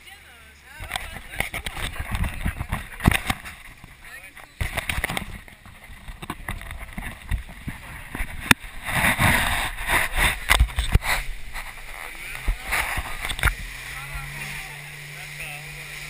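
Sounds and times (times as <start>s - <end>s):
motorboat running: 0.0s - 16.0s
water splashing: 0.6s - 16.0s
wind buffeting microphone: 0.8s - 4.0s, 4.6s - 13.8s
hull thumping on waves: 0.8s - 15.1s.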